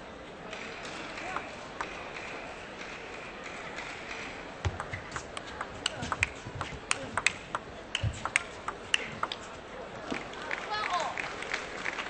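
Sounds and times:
table tennis ball clicking: 0.6 - 9.4.

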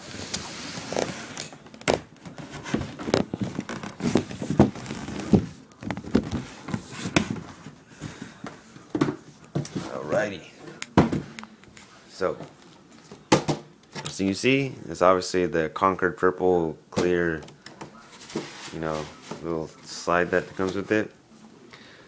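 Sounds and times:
plastic sheet sliding: 0.0 - 1.5, 18.1 - 19.3
plastic crinkling: 0.1 - 7.4.

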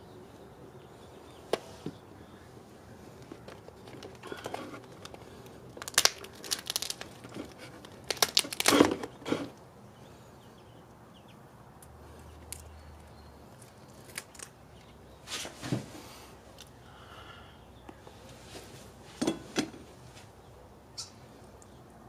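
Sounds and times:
crab shell crackling: 3.2 - 9.0, 13.6 - 14.6
crab legs snapping off: 3.9 - 9.0.

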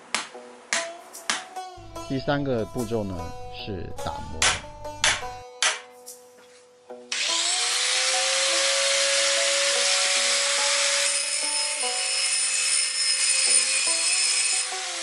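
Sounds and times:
angle grinder whining: 7.1 - 15.0
grinder grinding iron: 7.1 - 15.0.

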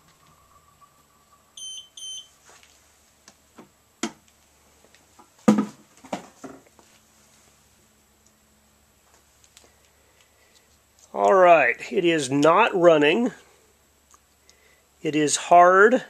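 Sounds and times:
machine beeping: 0.0 - 2.4
faint steady hum: 0.0 - 16.0.

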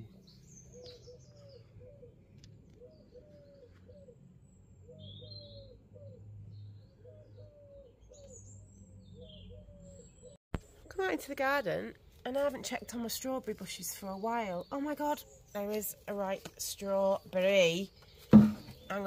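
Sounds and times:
pigeons cooing: 0.0 - 10.4
small birds chirping: 0.0 - 19.0.

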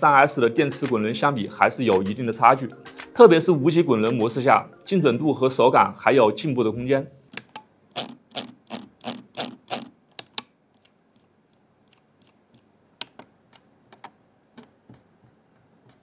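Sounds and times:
computer mouse clicking: 7.3 - 14.7.

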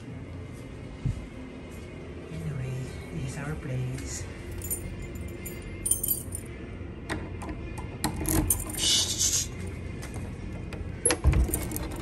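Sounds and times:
handle rattle: 11.0 - 12.0.

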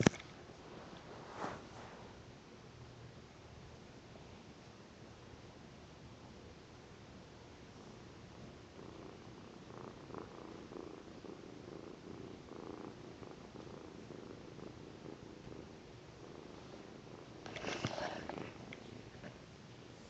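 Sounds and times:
rustling and scraping of camera: 0.0 - 2.2, 17.4 - 19.4
kitten purring: 7.5 - 20.0.

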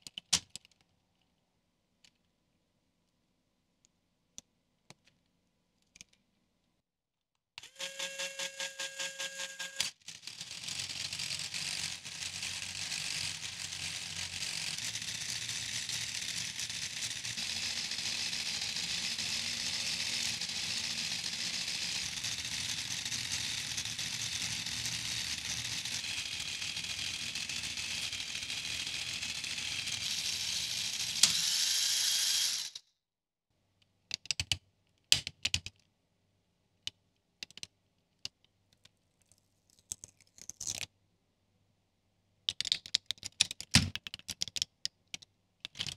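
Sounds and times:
plastic pieces clicking: 0.0 - 0.9, 36.8 - 40.9, 42.5 - 45.9
toy treadmill gears whirring: 7.6 - 32.9.

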